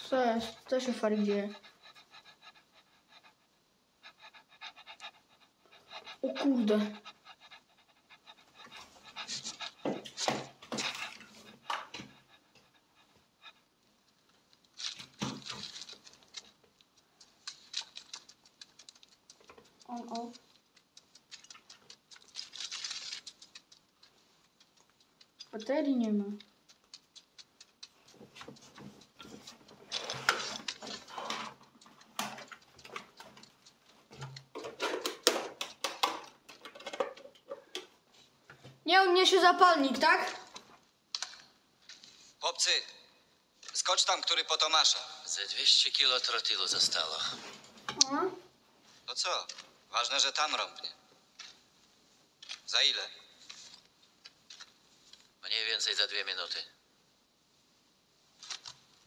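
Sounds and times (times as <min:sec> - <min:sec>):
dog panting: 0:00.0 - 0:14.2, 0:15.0 - 0:40.7
rustling: 0:04.1 - 0:38.9, 0:51.2 - 0:56.0.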